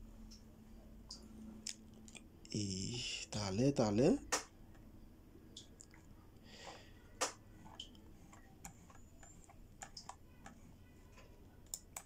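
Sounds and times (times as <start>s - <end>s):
computer mouse clicks: 7.2s - 10.8s, 11.6s - 12.0s.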